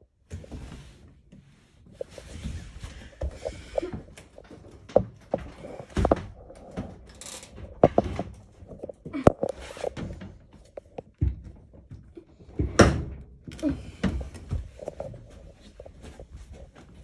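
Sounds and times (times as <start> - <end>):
knocks and thumps: 3.1 - 13.2.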